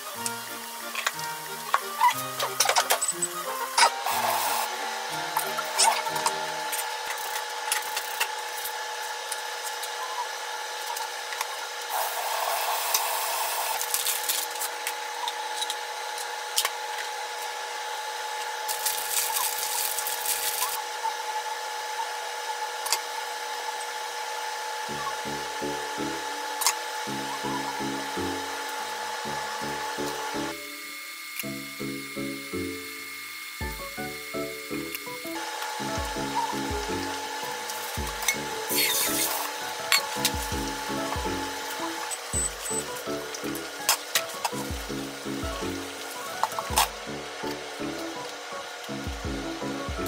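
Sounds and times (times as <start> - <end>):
light background music: 0.0 - 8.9, 24.8 - 50.0
kitchen appliance hum: 0.0 - 50.0
plastic snack bag rustling: 13.8 - 14.8, 18.7 - 20.8.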